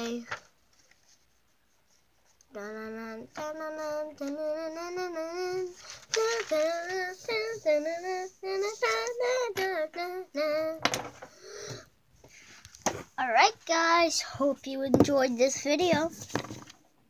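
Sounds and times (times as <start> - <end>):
child singing: 0.0 - 0.4, 2.5 - 11.0, 13.2 - 16.2.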